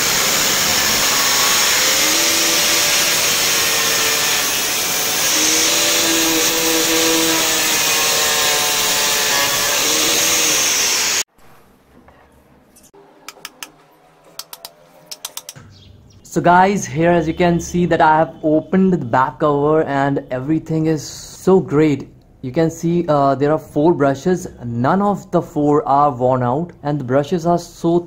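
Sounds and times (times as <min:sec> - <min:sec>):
angle grinder cutting metal: 0:00.0 - 0:11.3.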